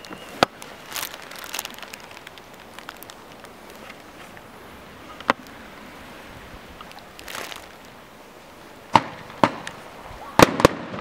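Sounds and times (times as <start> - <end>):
firework hiss: 0.0 - 11.0
low background noise: 0.0 - 11.0
fireworks bangs: 8.9 - 11.0.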